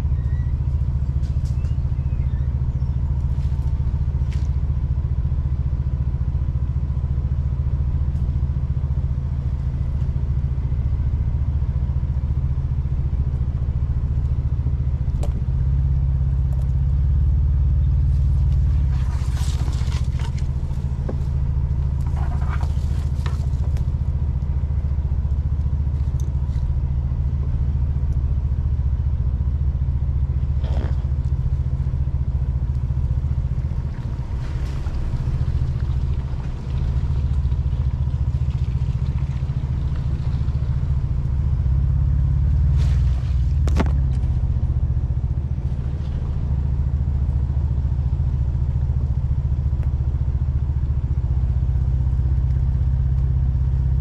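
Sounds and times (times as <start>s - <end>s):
low engine drone: 0.0s - 54.0s
sharp knocks and rattles: 18.8s - 24.0s.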